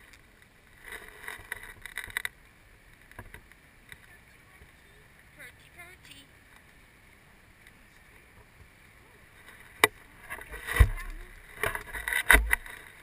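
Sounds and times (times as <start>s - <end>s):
rustling: 0.0s - 4.9s, 9.3s - 13.0s
low thumps: 10.5s - 12.7s.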